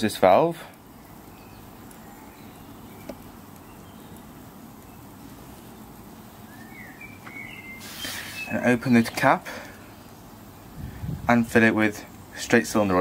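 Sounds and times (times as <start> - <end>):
bird chirps: 1.0 - 9.2.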